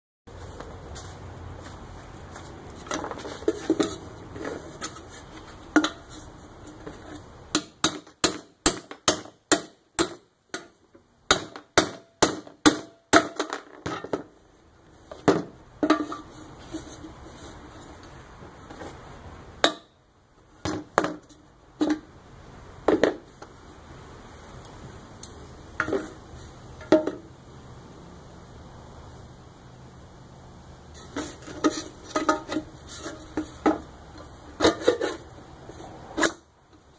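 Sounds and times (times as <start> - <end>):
hammer striking awl on metal can: 7.6 - 10.7, 11.3 - 14.0, 19.6 - 19.9.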